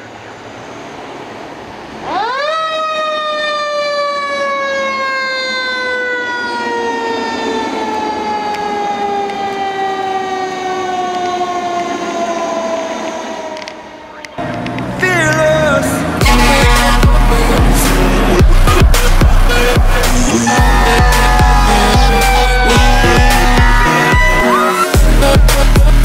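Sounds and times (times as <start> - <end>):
fire engine mechanical siren: 2.0 - 14.8, 20.3 - 25.0.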